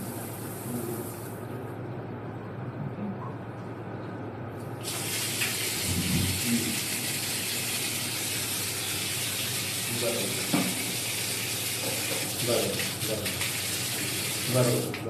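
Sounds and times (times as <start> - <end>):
water gushing onto tiled floor: 4.8 - 15.0.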